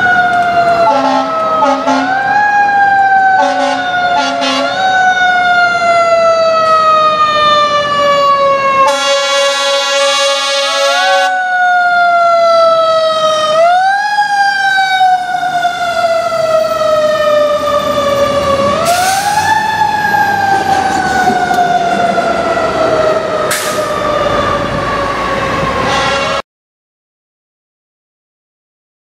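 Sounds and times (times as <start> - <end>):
fire truck siren wailing: 0.0 - 26.4
air horn blast: 0.9 - 2.2, 3.4 - 4.8, 8.9 - 11.3, 25.8 - 26.4.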